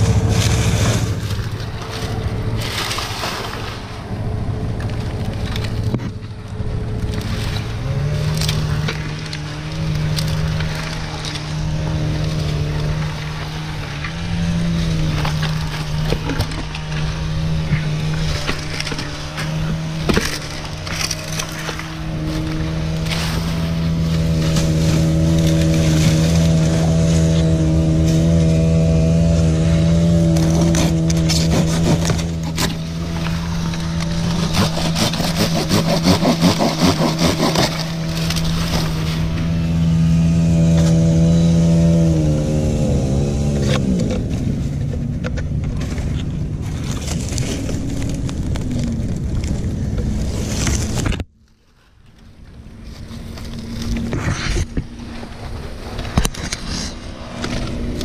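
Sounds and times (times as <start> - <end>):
engine hum: 0.0 - 58.0
palm fronds crackling and snapping: 0.0 - 58.0
hand saw strokes: 7.1 - 44.0.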